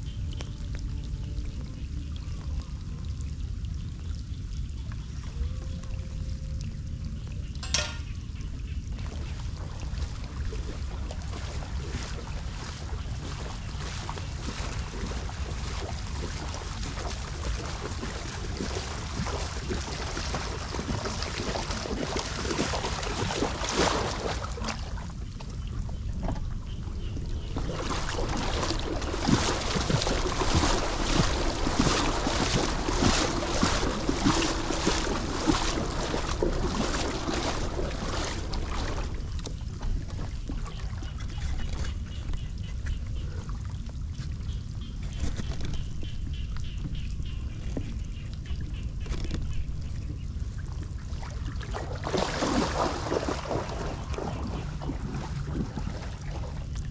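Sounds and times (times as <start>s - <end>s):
wind rumbling on microphone: 0.0s - 56.9s
short sharp splashes: 10.6s - 25.0s, 27.6s - 39.4s, 51.1s - 56.6s.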